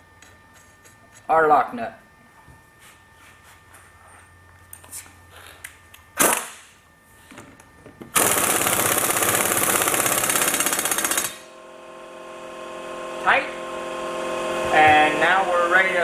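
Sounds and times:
impact wrench hammering: 0:08.1 - 0:11.5.

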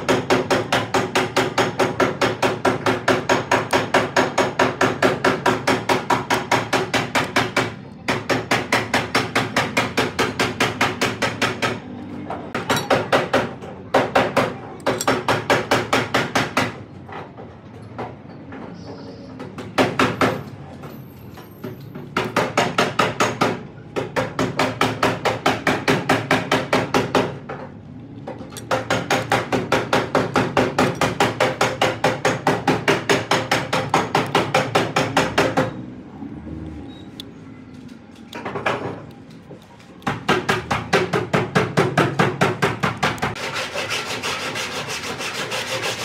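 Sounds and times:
rapid metallic hammering: 0:00.0 - 0:11.9, 0:12.5 - 0:16.8, 0:19.5 - 0:20.5, 0:22.1 - 0:35.8, 0:40.0 - 0:46.0.

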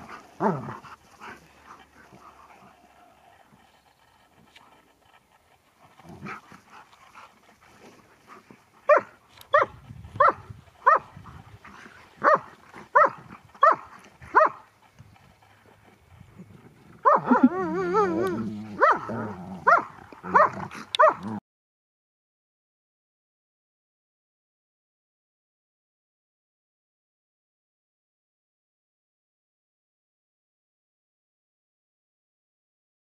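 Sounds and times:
dogs barking: 0:08.8 - 0:14.8, 0:17.0 - 0:21.4
wavering warbling dog call: 0:17.0 - 0:21.3.

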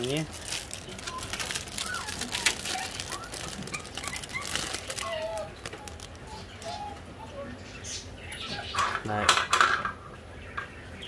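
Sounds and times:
rustling in a wire cage: 0:00.0 - 0:07.0.

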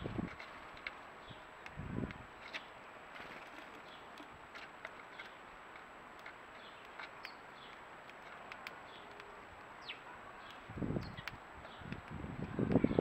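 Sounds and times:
beaks pecking seed: 0:00.0 - 0:13.0
sparrows chirping: 0:00.0 - 0:13.0.

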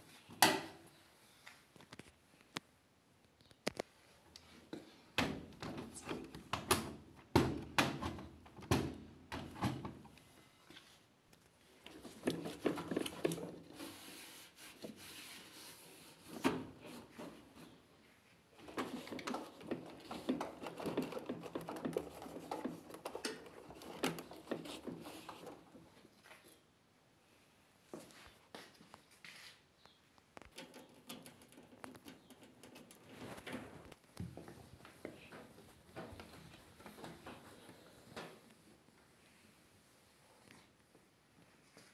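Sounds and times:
washing machine parts knocking and scraping: 0:11.9 - 0:14.1, 0:18.6 - 0:26.0.

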